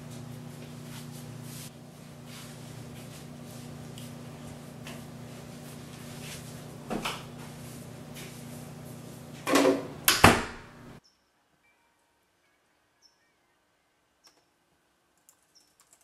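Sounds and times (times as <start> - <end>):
low room hum: 0.0 - 11.0
door banging: 9.5 - 10.7.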